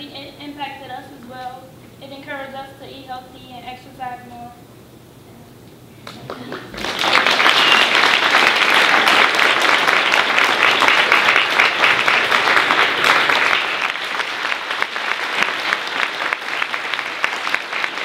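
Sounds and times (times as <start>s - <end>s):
audience applauding: 6.0s - 18.0s.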